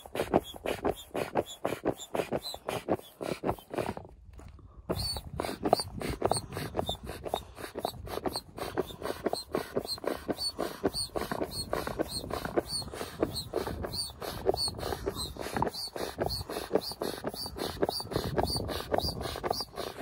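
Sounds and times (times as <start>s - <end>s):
pump squeak: 0.0s - 4.1s, 4.9s - 20.0s
manual air pump strokes: 0.0s - 20.0s.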